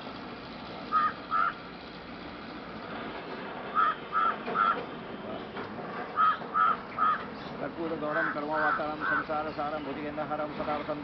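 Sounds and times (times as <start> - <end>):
crow cawing: 0.9 - 1.6, 3.7 - 4.8, 6.2 - 7.3, 8.1 - 9.3.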